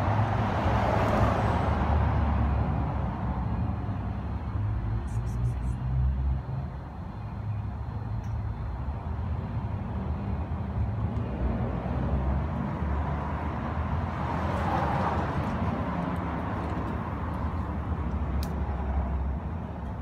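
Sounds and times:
road traffic rumble: 0.0 - 20.0
vehicle passing: 9.7 - 19.4.

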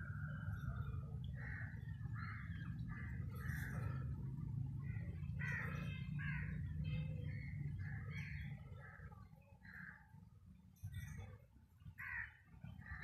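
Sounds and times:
steady low hum: 0.0 - 13.0
crows cawing: 0.8 - 4.2, 4.8 - 6.7, 11.9 - 13.0.

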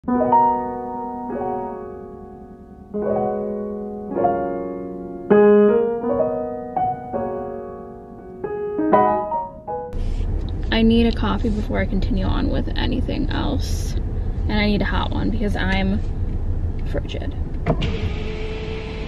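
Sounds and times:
soft piano chords: 0.0 - 10.0.

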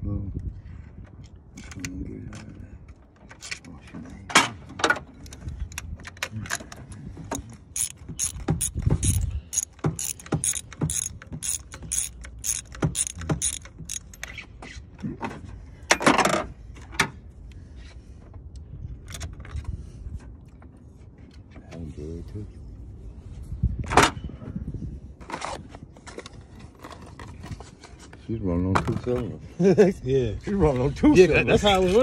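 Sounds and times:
ratchet rasp: 7.8 - 14.4
ratchet wrench clicking: 7.8 - 14.4.

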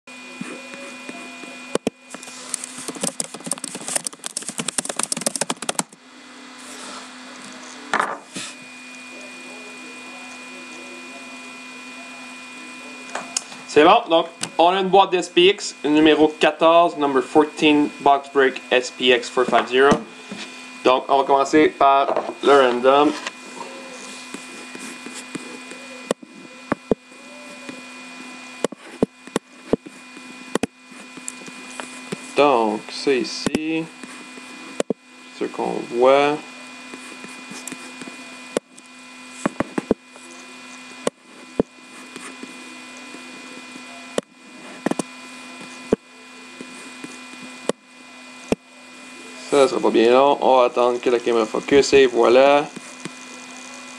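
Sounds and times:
low electrical hum: 0.1 - 53.9
rapid sharp clicks: 2.6 - 6.0.

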